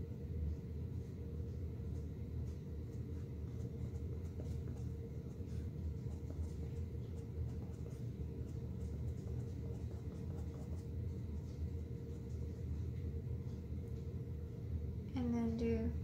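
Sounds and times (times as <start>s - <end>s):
faint steady hum: 0.0s - 16.0s
low room rumble: 0.0s - 16.0s
brush tapping on canvas: 1.4s - 12.9s.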